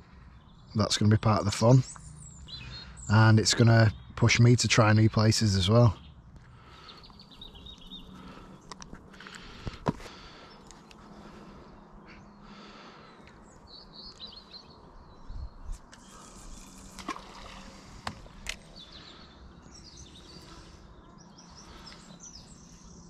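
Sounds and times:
small birds chirping: 0.0s - 23.0s.

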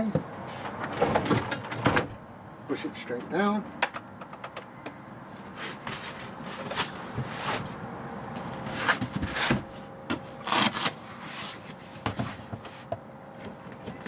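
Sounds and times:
fabric cushions rubbing and scraping: 5.4s - 7.8s, 8.5s - 9.8s.

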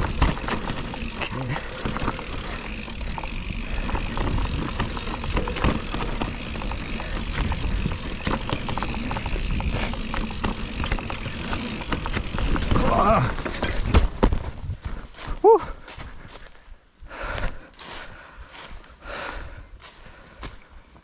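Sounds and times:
bike knocks and rattles: 0.0s - 15.0s
tyre rolling noise on dirt: 0.0s - 15.4s.

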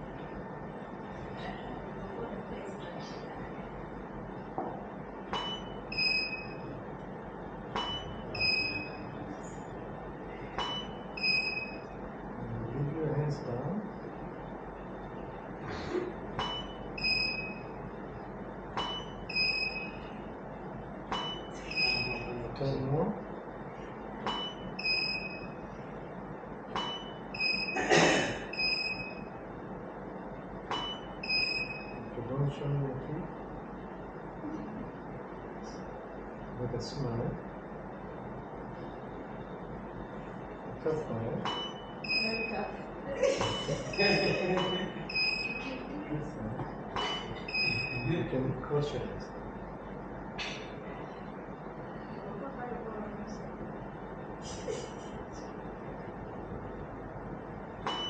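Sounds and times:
short electronic beeps: 5.4s - 6.7s, 7.8s - 9.1s, 10.6s - 11.9s, 16.4s - 17.7s, 18.8s - 20.1s, 21.1s - 22.4s, 24.3s - 25.6s, 26.8s - 27.8s, 28.5s - 29.3s, 30.7s - 32.1s, 41.5s - 42.6s, 43.9s - 45.8s, 47.0s - 48.1s.

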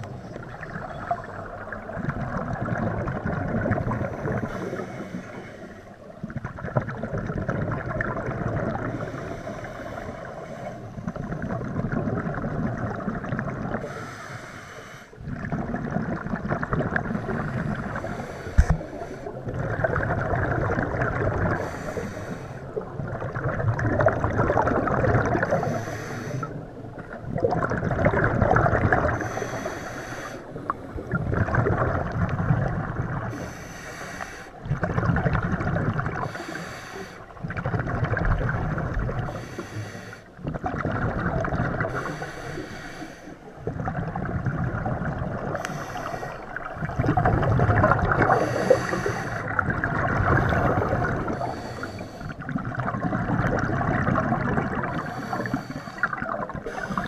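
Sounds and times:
bubbles from exhalation: 1.7s - 4.4s, 6.3s - 8.9s, 11.1s - 13.9s, 15.2s - 17.8s, 19.4s - 21.6s, 22.8s - 25.7s, 27.0s - 29.2s, 31.1s - 33.3s, 34.7s - 36.4s, 40.4s - 42.0s, 46.6s - 51.5s, 52.4s - 55.1s
regulator inhalation hiss: 13.9s - 15.2s, 21.6s - 22.6s, 25.6s - 26.6s, 29.2s - 30.5s, 33.3s - 34.6s, 36.2s - 37.2s, 39.3s - 40.3s, 41.9s - 43.5s, 45.6s - 46.6s, 48.4s - 49.5s, 51.3s - 52.4s, 54.9s - 57.0s.

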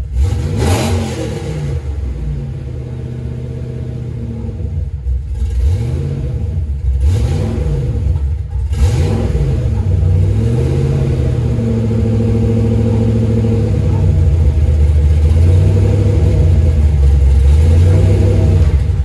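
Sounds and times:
car engine revving and idling: 0.0s - 19.0s.

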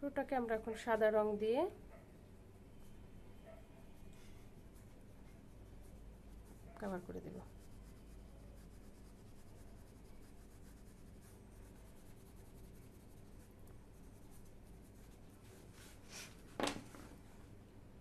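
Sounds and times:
oil pastel rubbing on paper: 3.8s - 17.5s
scrape or rustle: 15.5s - 17.3s.

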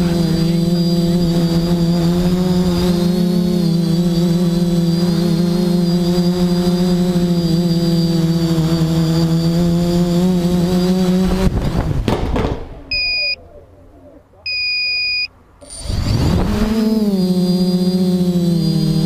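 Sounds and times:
high whine: 0.0s - 11.9s, 14.5s - 19.0s
drone motors humming: 0.0s - 12.1s, 12.7s - 19.0s
electronic beep: 12.9s - 13.4s, 14.5s - 15.9s.

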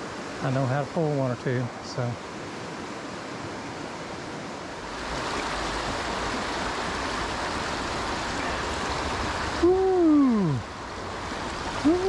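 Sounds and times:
stream rushing over stones: 0.0s - 12.0s.

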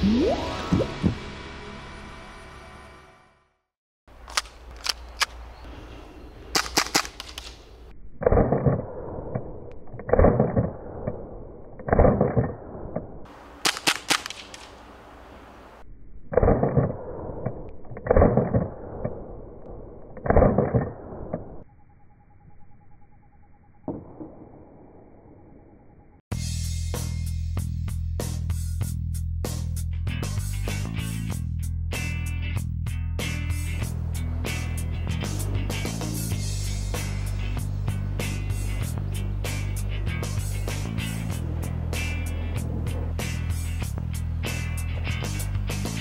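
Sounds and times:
airsoft pistol shots clacking: 6.6s - 8.8s, 13.6s - 14.8s.

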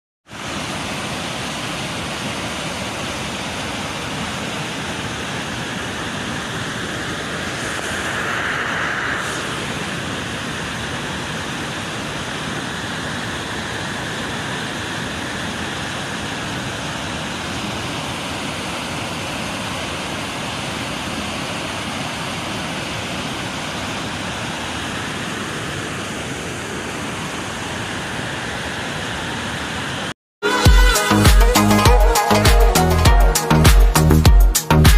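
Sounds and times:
water rushing down a spillway: 0.3s - 7.6s, 10.0s - 30.1s.

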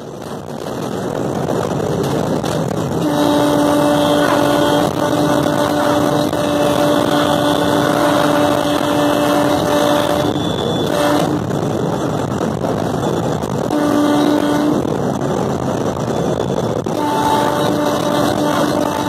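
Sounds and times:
train rumble: 0.0s - 19.0s
wind noise: 0.0s - 19.0s
locomotive horn blast: 2.9s - 12.2s, 12.8s - 15.2s, 16.0s - 19.0s.

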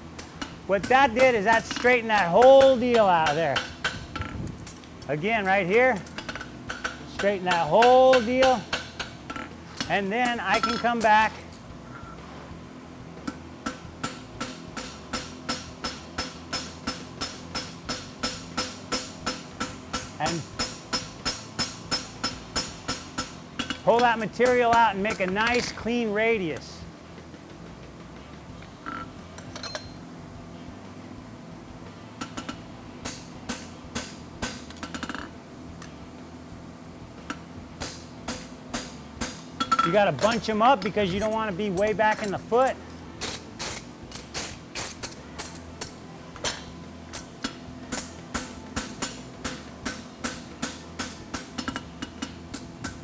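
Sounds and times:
hammer striking metal on anvil: 6.2s - 9.2s, 13.3s - 25.8s, 37.8s - 42.4s, 47.4s - 53.0s.

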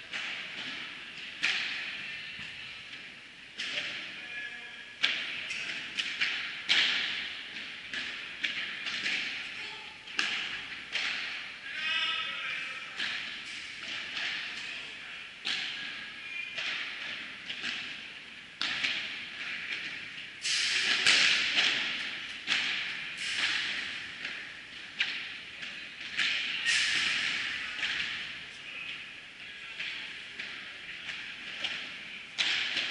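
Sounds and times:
rackets striking ball: 0.0s - 4.2s, 4.9s - 11.6s, 12.6s - 32.9s
ball bouncing on court and glass: 0.1s - 1.9s, 5.0s - 9.4s, 10.1s - 11.4s, 18.6s - 20.0s, 20.7s - 28.4s, 29.8s - 32.9s.

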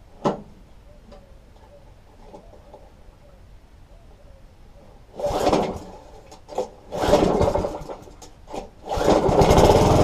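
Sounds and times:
lawn mower engine running: 5.2s - 10.0s
recoil starter rasping rattle: 5.2s - 10.0s.

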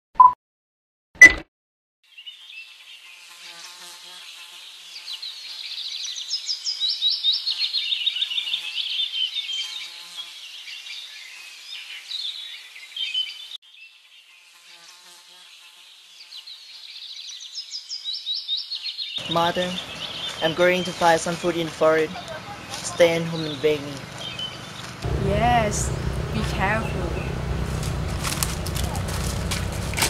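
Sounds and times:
insects buzzing in pulsing chorus: 19.2s - 21.5s, 24.0s - 30.0s.

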